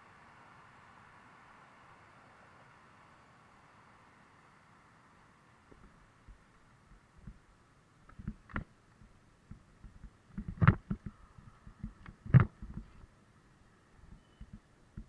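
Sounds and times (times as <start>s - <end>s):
bicycle rattling over bumps: 9.5s - 13.0s.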